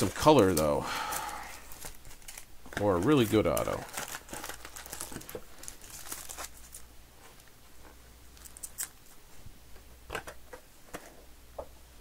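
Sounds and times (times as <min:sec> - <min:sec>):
foil card packs crinkling: 0:00.0 - 0:07.5, 0:08.3 - 0:09.0.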